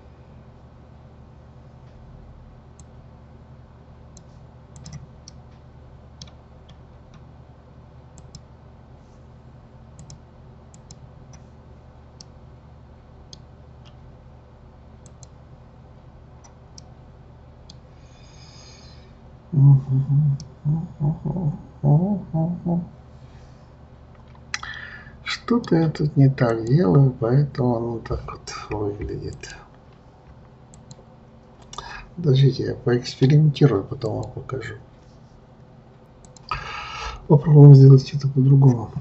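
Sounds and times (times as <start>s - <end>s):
steady low hum: 0.0s - 39.0s
computer mouse and keyboard clicks: 4.2s - 5.6s, 10.0s - 11.5s, 15.0s - 15.4s.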